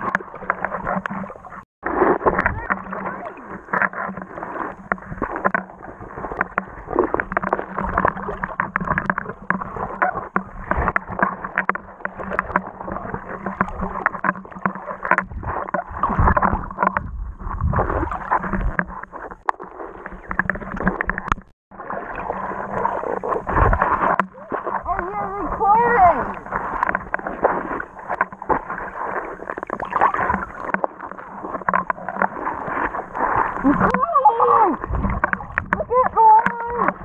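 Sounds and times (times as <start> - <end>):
underwater gurgling and crackling: 0.0 - 37.0.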